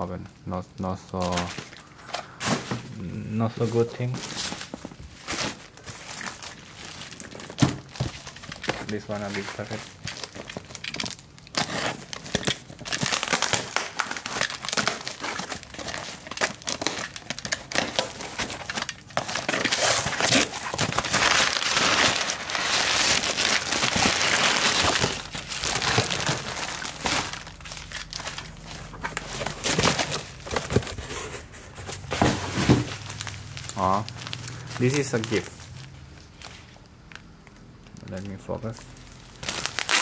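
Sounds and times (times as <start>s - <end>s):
paper and plastic crinkling: 0.7s - 40.0s
packing tape peeled and torn: 5.2s - 31.0s, 39.3s - 40.0s.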